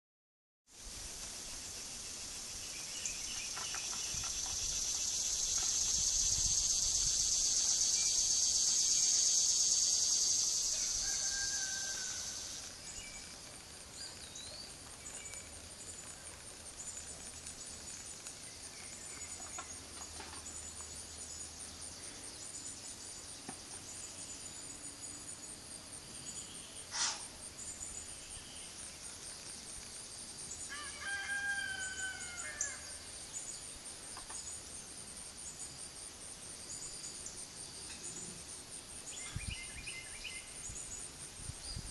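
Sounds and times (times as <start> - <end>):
high-pitched insect drone: 2.0 - 13.3.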